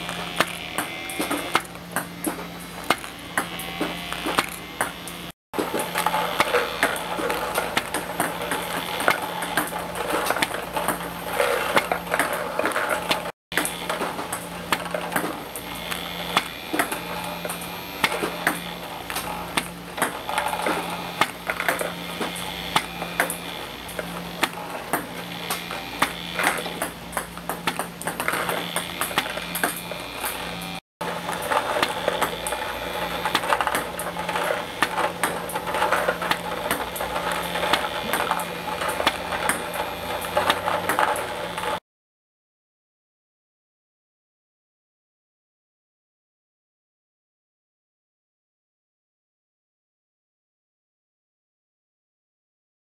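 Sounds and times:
motor hum and wheel whir: 0:00.0 - 0:41.8
ping-pong balls clicking on table: 0:00.0 - 0:41.8.

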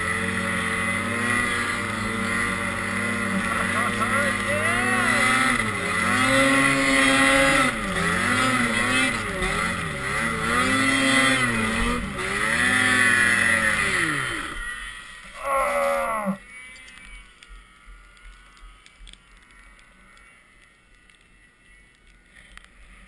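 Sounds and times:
snowmobile engine revving: 0:00.0 - 0:16.4.

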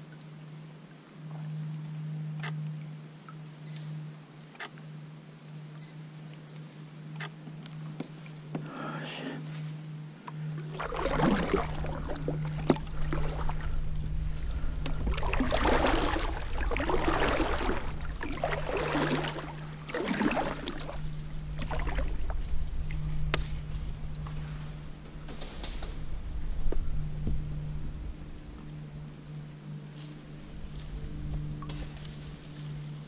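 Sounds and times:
paddle splashing through water: 0:10.3 - 0:27.4.

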